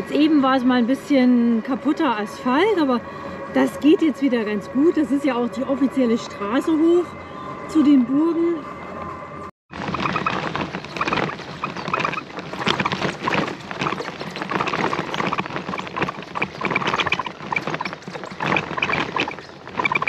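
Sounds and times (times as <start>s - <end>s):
bicycle rattling: 9.7s - 20.0s
tyres crunching over rough road: 9.7s - 20.0s.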